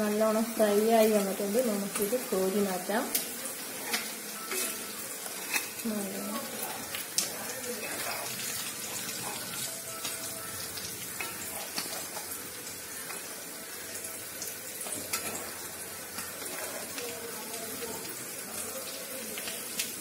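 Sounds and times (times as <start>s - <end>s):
oil sizzling in a pan: 0.0s - 20.0s.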